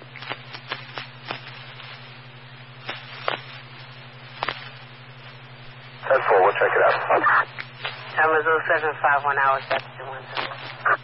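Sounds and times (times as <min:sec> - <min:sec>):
low hum: 0:00.0 - 0:11.0
radio static hiss: 0:00.0 - 0:11.0
static clicks and pops: 0:06.0 - 0:11.0.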